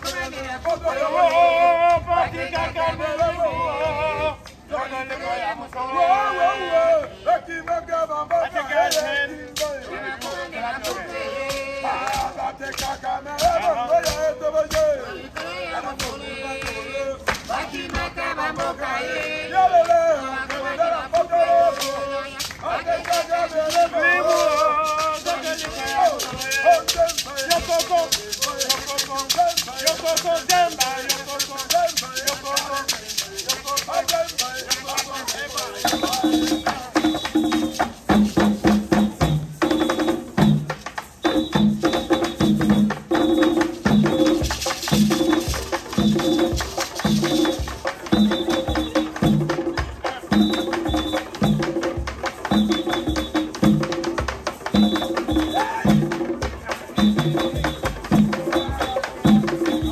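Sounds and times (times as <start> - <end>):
man singing a chant: 0.0 - 37.8, 54.7 - 59.9
hand drums playing fast rhythm: 21.7 - 59.9
sharp percussive strikes: 21.7 - 59.9.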